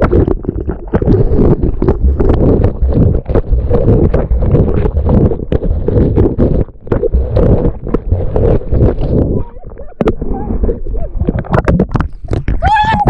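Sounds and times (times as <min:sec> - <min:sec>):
water churning against camera housing: 0:00.0 - 0:13.0.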